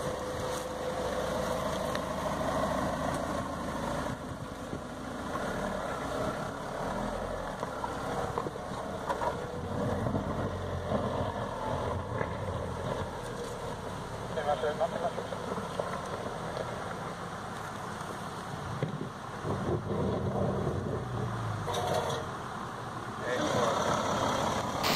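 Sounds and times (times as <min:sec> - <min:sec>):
car engine at low revs: 0:00.0 - 0:24.9.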